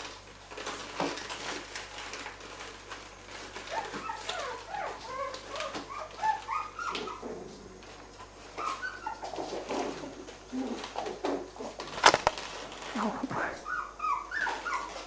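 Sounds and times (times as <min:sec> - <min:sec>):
paper rustling: 0:00.0 - 0:07.1, 0:07.8 - 0:13.1
paper crackle: 0:00.0 - 0:07.2, 0:07.8 - 0:15.0
puppies whining and growling: 0:03.3 - 0:11.9, 0:13.3 - 0:15.0.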